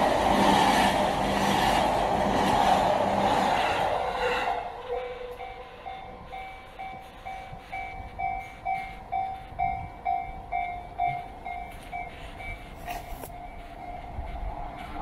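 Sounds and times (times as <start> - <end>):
level crossing alarm dinging: 4.9 - 14.2.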